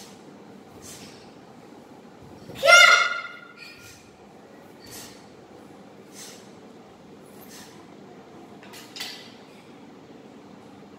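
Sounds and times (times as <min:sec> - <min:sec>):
weapons swishing through air: 0:00.0 - 0:01.4, 0:04.7 - 0:05.3
fan-like room hum: 0:00.0 - 0:10.9.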